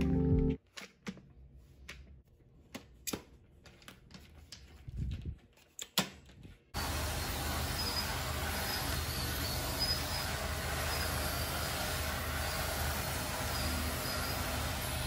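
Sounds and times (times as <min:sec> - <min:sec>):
vacuum cleaner motor running: 0:06.8 - 0:15.0.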